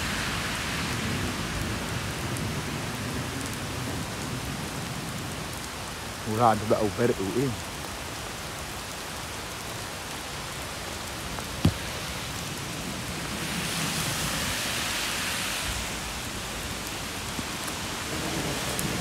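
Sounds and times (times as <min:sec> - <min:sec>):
heavy rain on pavement: 0:00.0 - 0:19.0.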